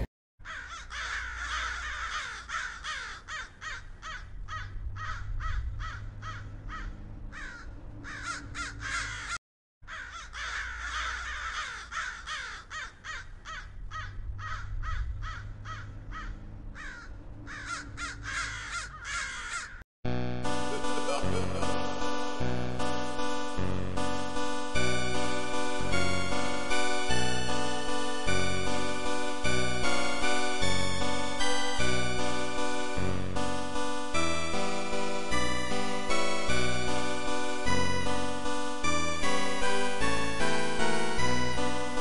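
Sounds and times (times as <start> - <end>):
crows cawing: 0.4 - 19.8.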